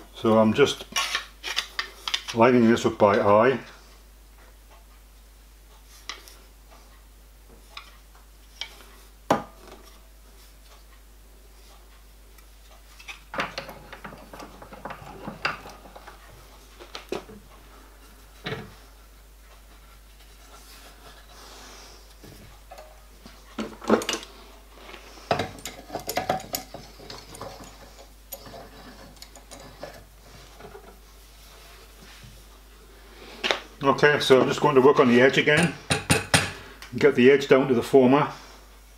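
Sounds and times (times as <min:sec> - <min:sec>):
metallic clinks and rattles: 0:25.4 - 0:30.0.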